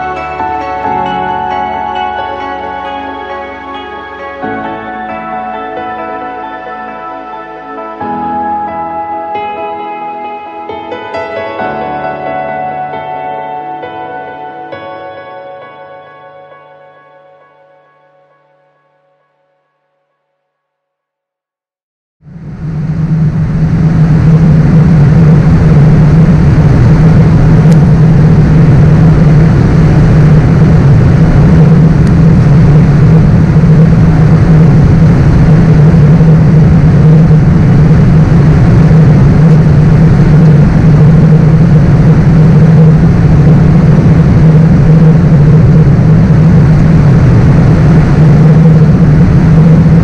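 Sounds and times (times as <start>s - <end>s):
aircraft cabin engine rumble: 22.3s - 50.0s.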